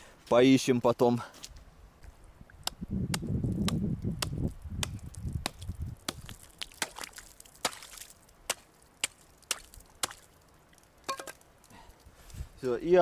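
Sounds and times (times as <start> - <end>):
hatchet chopping ice: 3.6 - 10.2.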